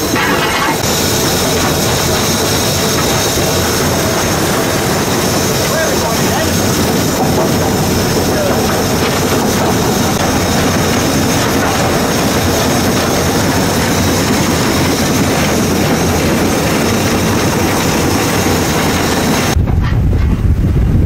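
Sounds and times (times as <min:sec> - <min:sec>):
steam locomotive running: 0:00.0 - 0:20.9
wind rumble on microphone: 0:12.6 - 0:21.0.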